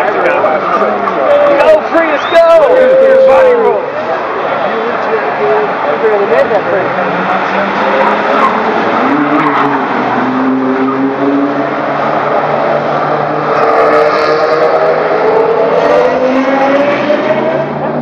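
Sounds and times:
car engines overlapping: 0:00.0 - 0:18.0
car accelerating away: 0:05.9 - 0:18.0.

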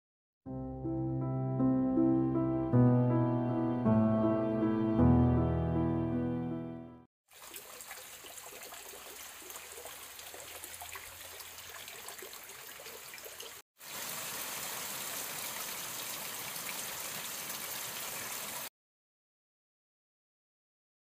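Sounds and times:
water trickling: 0:07.3 - 0:18.7
rain hissing on foliage: 0:13.8 - 0:18.7.

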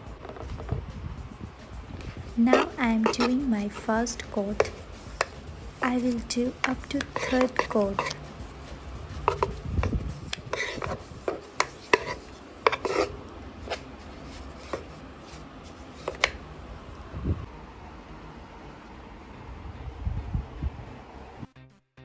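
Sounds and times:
paintbrush strokes on wood: 0:02.0 - 0:16.3.

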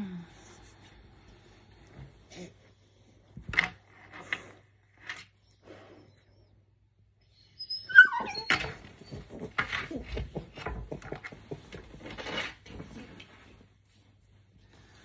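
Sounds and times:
puppy whining: 0:07.2 - 0:11.8
rustling and scuffling on bedding: 0:08.7 - 0:15.0.

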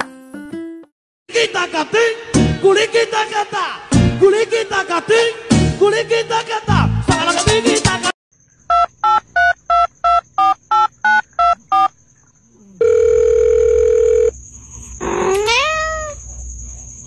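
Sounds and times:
phone keypad dialing beeps: 0:08.7 - 0:11.9
steady telephone tone: 0:12.8 - 0:14.4
cat meowing: 0:15.0 - 0:16.2.

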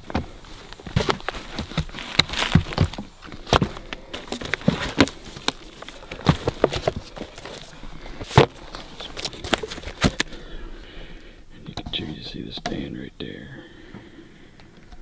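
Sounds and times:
knocks of handling logs: 0:00.0 - 0:10.4
footsteps among logs and litter: 0:00.0 - 0:11.2.

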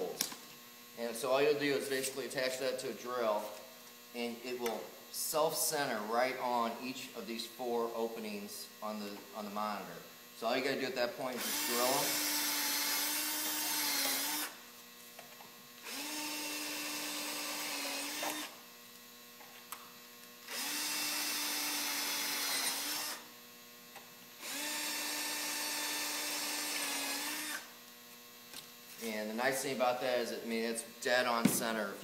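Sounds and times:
cordless drill drilling: 0:11.3 - 0:14.6, 0:15.8 - 0:18.6, 0:20.4 - 0:23.3, 0:24.4 - 0:27.7.

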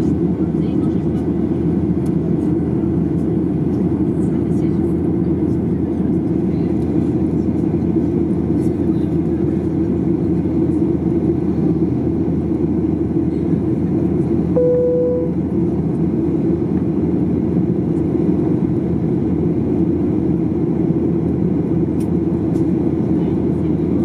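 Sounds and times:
airliner cabin engine rush: 0:00.0 - 0:24.0
short single tone: 0:14.6 - 0:15.4.

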